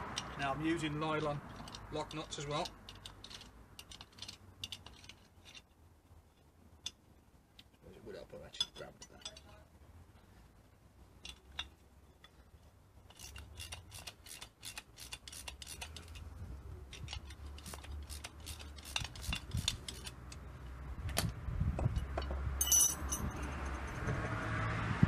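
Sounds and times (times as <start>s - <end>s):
metallic clicks and scrapes: 1.4s - 7.8s, 11.2s - 24.0s
bright metal clink: 22.6s - 23.5s.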